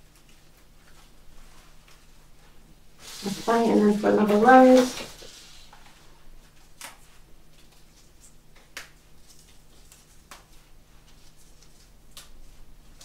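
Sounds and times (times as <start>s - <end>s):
flower stems rustling: 0.2s - 5.4s.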